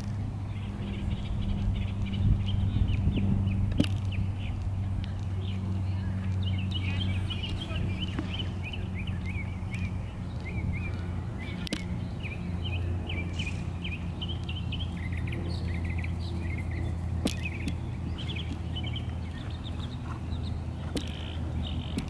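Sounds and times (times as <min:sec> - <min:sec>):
low hum: 0:00.0 - 0:22.0
small birds chirping: 0:00.0 - 0:22.0
sharp clicks: 0:09.2 - 0:12.0, 0:17.2 - 0:19.1, 0:20.8 - 0:22.0.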